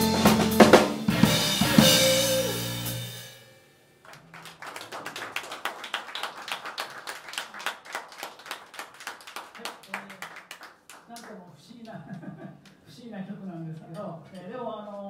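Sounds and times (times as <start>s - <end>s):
audience applauding: 4.0s - 11.5s.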